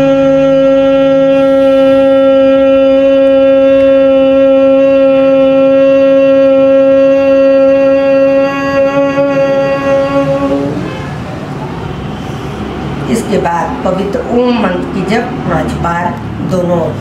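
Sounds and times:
woman humming: 0.0s - 11.0s.

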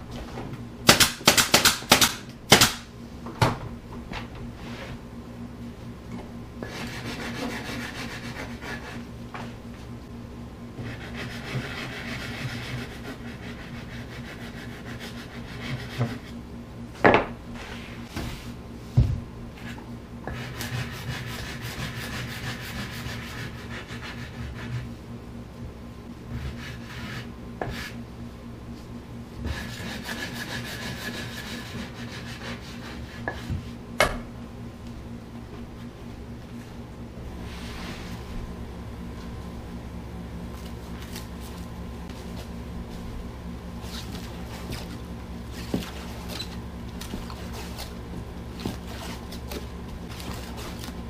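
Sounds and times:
sanding block scratching wood: 6.6s - 9.1s, 10.8s - 16.4s, 20.3s - 24.9s, 26.4s - 28.0s, 29.4s - 33.5s.

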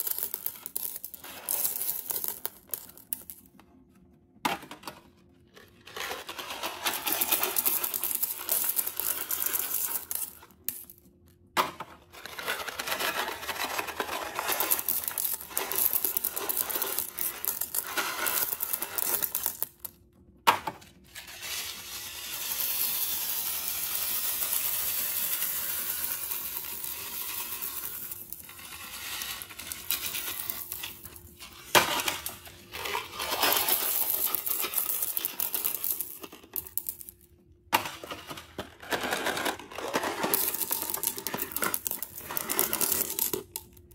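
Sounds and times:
candies rattling into toilet bowl: 5.5s - 10.8s, 12.0s - 19.6s, 22.4s - 37.2s, 37.8s - 43.9s.

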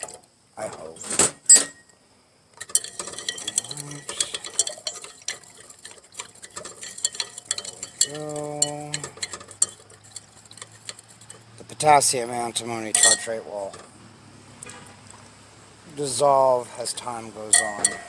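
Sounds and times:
glass rod clinking in beaker: 2.6s - 5.6s, 6.3s - 10.7s, 12.8s - 13.9s, 17.5s - 18.0s.

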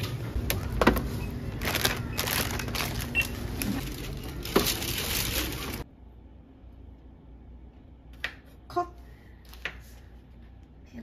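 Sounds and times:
shop background noise: 0.0s - 5.9s
packaging crinkling: 1.5s - 5.8s.

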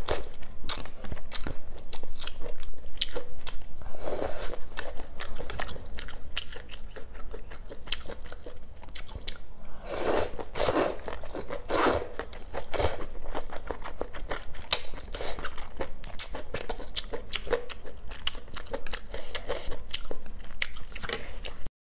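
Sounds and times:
wet chewing with mouth clicks: 4.4s - 9.5s, 10.1s - 21.7s.

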